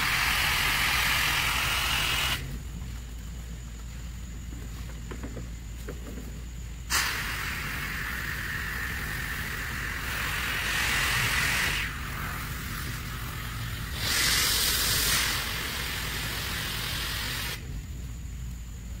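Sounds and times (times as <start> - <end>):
pressure washer jet hissing: 0.0 - 2.5, 6.9 - 17.6.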